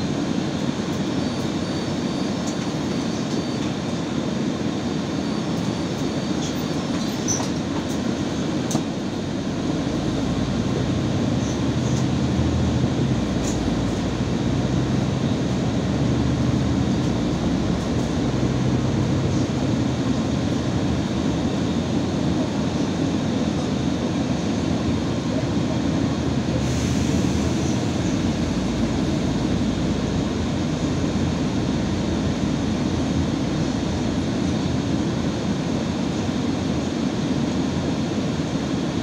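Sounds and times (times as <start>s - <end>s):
bus engine and road noise: 0.0s - 39.0s
low engine hum: 5.4s - 39.0s.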